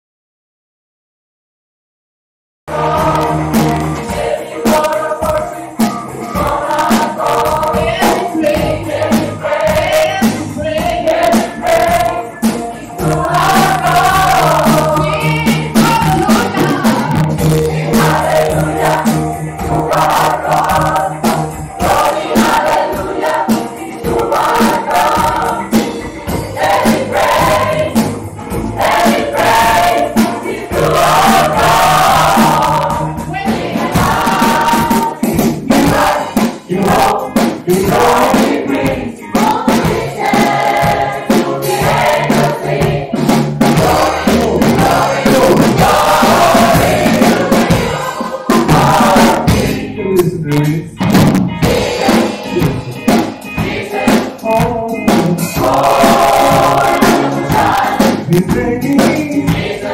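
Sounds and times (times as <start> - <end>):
gospel choir singing: 2.7 - 50.5, 51.5 - 59.9
drum kit beat: 2.7 - 59.9
keyboard: 2.7 - 59.9
electric guitars: 33.0 - 59.9.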